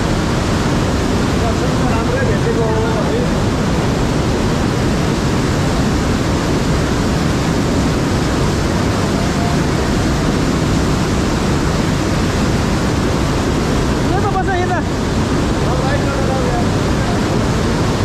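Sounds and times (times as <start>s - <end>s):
whitewater rushing: 0.0s - 18.0s.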